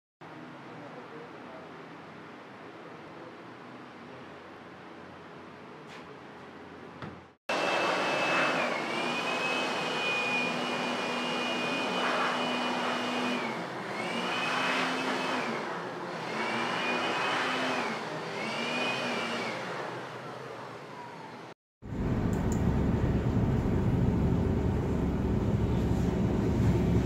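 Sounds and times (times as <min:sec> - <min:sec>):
low hum: 0:21.8 - 0:27.0.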